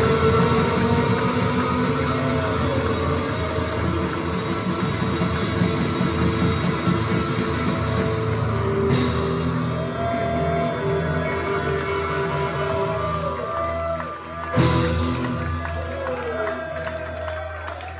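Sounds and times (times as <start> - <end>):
drum kit: 0.0 - 17.9.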